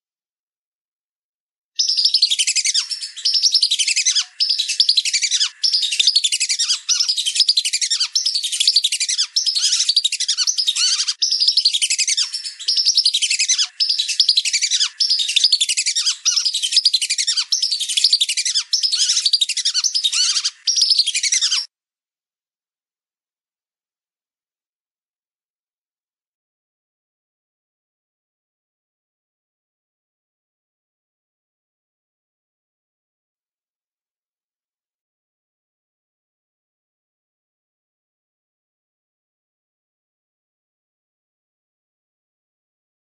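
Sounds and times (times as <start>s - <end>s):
ducks whistling calls: 1.8s - 21.7s.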